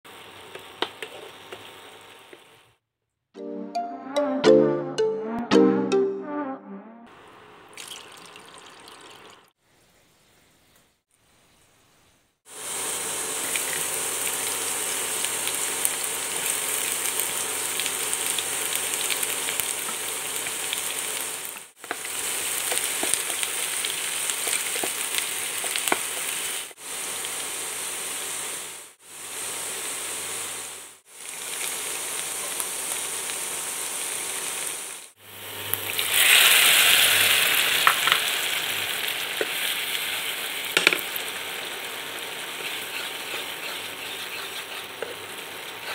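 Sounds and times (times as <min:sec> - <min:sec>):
onions sizzling in hot oil: 0:00.1 - 0:02.7, 0:12.5 - 0:45.9.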